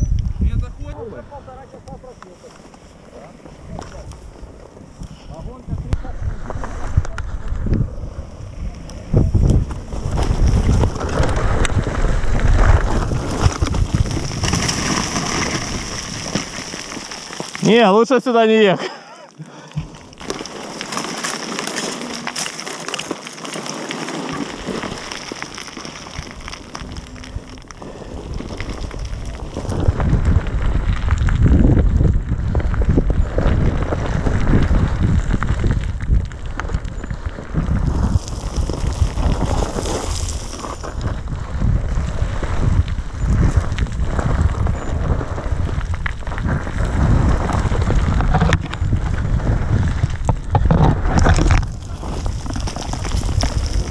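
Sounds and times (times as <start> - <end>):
wind rumbling on microphone: 0.0 - 18.0, 23.6 - 53.9
stones crunching under tyres: 0.0 - 53.9
motorcycle moving slowly: 6.1 - 15.9, 19.9 - 53.9.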